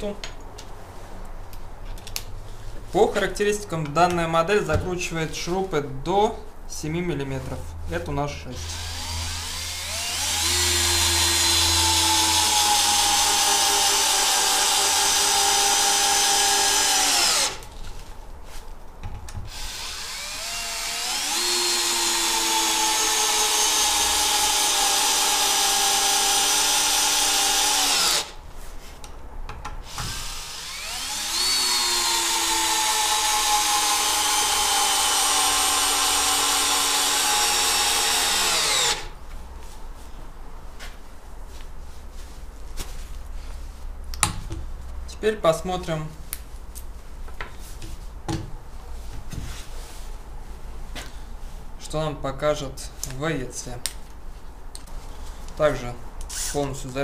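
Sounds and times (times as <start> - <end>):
cordless drill driving screws: 8.6 - 17.7, 19.5 - 28.4, 29.8 - 39.1, 56.3 - 56.6.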